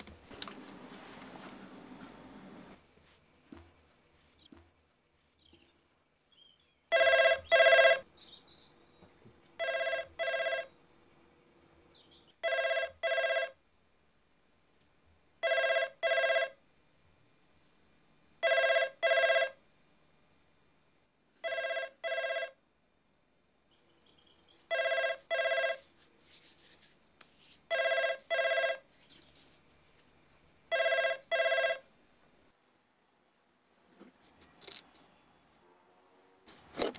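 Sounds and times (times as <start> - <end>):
telephone double ring: 21.4 - 22.6, 30.7 - 31.8.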